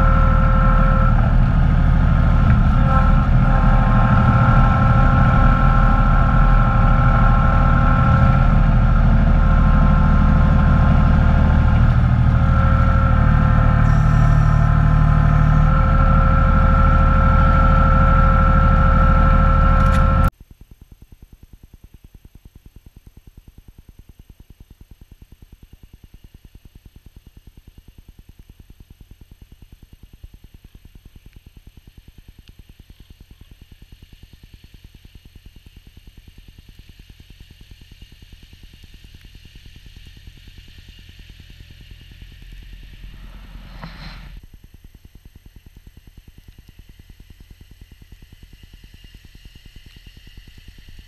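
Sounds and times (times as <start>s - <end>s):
diesel tractor engine running: 0.0s - 20.3s, 38.8s - 44.5s.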